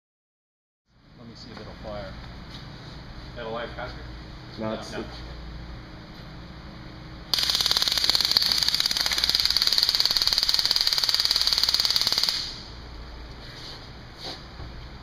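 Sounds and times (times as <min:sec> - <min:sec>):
stun gun electric crackle: 0:07.3 - 0:12.8.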